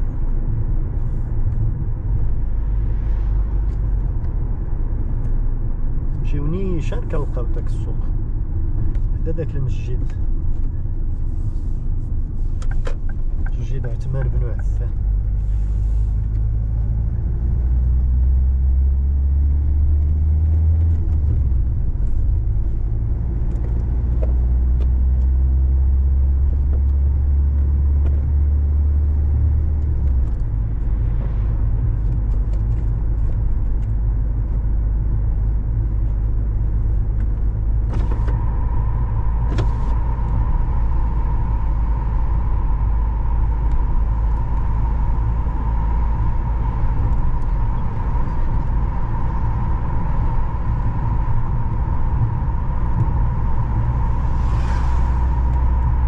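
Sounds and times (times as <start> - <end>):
car road and engine rumble: 0.0 - 56.0
high hum: 37.4 - 56.0.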